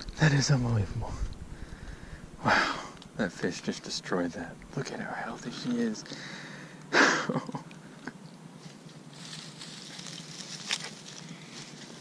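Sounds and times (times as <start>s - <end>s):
soft rustling in grass: 8.5s - 12.0s.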